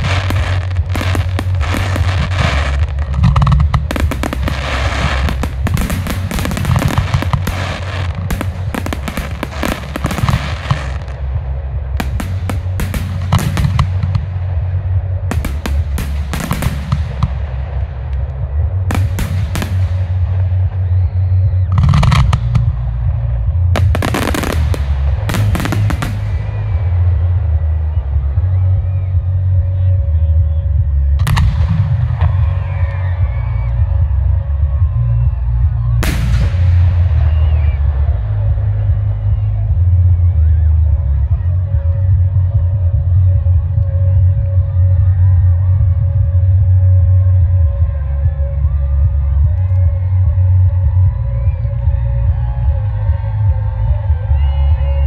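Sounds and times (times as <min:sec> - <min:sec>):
fireworks bangs and crackles: 0:00.0 - 0:28.6, 0:31.2 - 0:39.5
continuous low rumble: 0:00.0 - 0:55.0.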